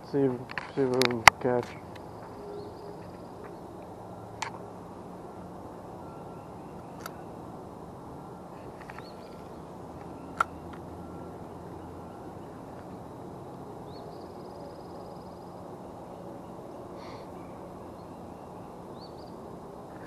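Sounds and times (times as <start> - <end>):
bird calls: 0.6 - 3.8, 8.5 - 13.0, 13.8 - 20.0.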